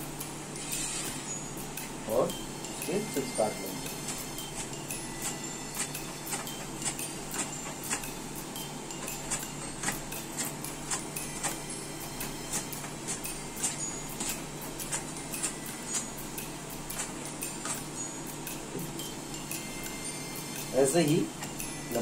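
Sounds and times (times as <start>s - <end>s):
slicer cutting strokes: 2.8s - 8.2s.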